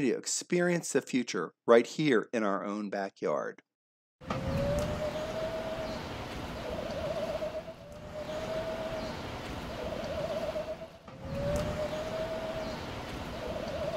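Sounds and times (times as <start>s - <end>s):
hooting tone sliding up: 4.2s - 13.9s.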